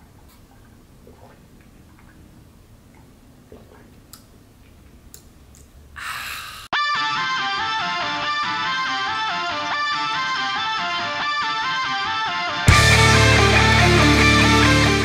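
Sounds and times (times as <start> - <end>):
breathy exhale: 6.0 - 6.8
plucked guitar music: 6.8 - 15.0.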